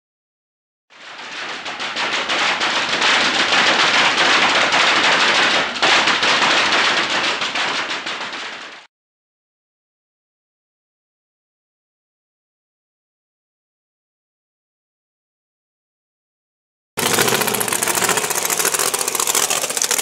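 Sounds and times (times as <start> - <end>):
drag engine crackling: 1.0 - 8.8, 17.0 - 20.0.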